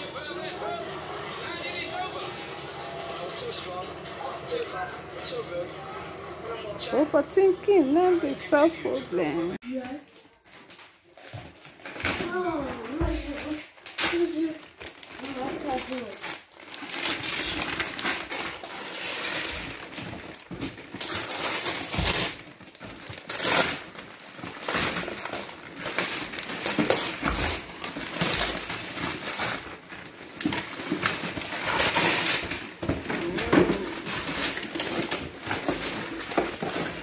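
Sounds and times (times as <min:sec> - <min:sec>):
wrapping paper tearing and crinkling: 0:10.2 - 0:37.0.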